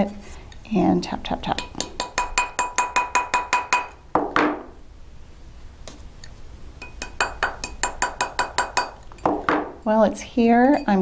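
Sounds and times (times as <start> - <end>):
metallic ringing of mandrel: 6.8 - 11.0.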